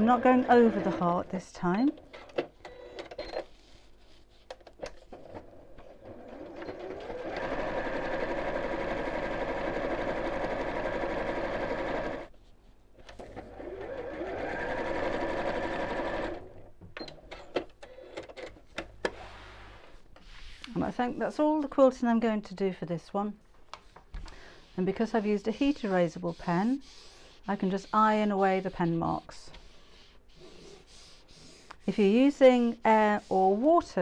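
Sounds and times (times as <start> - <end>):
electric sewing machine stitching: 0.0 - 1.1, 6.1 - 12.3, 13.2 - 16.5.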